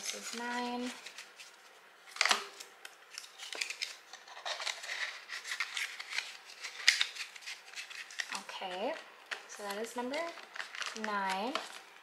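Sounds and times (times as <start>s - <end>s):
banknotes rustling: 0.0s - 12.0s.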